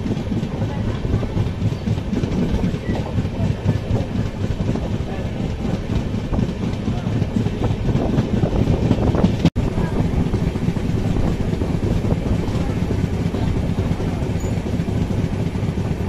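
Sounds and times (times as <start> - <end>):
train coach knocks and rattles: 0.0 - 9.6
passenger train rumbling: 0.0 - 16.0.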